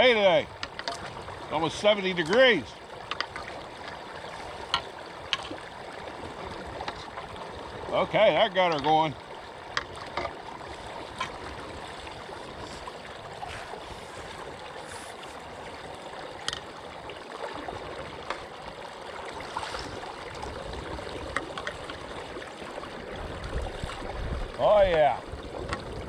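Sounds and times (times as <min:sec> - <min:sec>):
light splashes and knocks: 0:00.6 - 0:01.2, 0:01.8 - 0:05.6, 0:06.7 - 0:07.3, 0:08.6 - 0:12.0, 0:16.4 - 0:16.8, 0:18.2 - 0:18.6, 0:21.2 - 0:22.1, 0:24.8 - 0:26.0.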